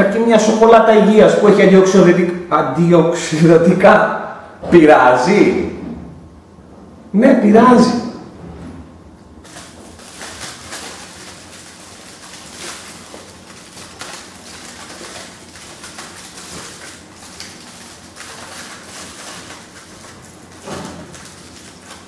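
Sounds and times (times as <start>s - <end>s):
aluminium foil crinkling: 9.4s - 22.0s.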